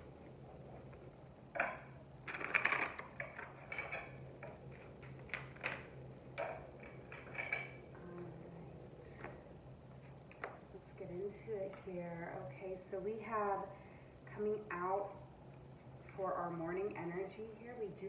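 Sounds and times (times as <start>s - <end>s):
faint low hum: 0.0s - 18.0s
cards shuffling: 2.3s - 3.6s.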